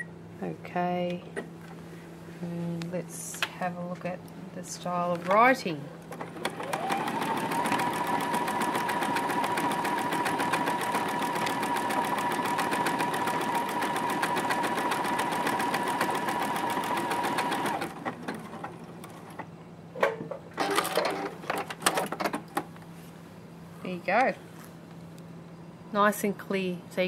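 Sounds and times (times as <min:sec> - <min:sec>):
sewing machine stitching: 0:06.2 - 0:19.2.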